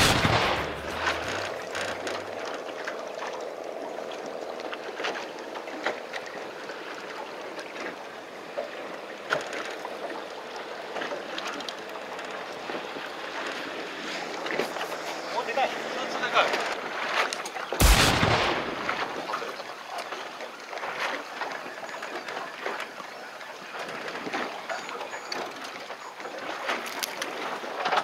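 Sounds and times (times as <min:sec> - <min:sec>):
faint low engine hum: 0:00.0 - 0:17.0
water washing: 0:00.0 - 0:21.3
wind: 0:00.0 - 0:28.0.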